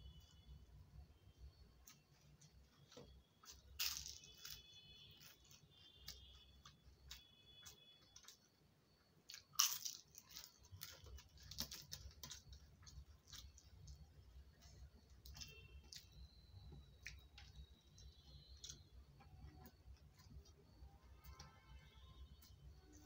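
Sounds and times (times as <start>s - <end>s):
crisp snack crunching: 2.9s - 8.4s, 9.2s - 14.0s.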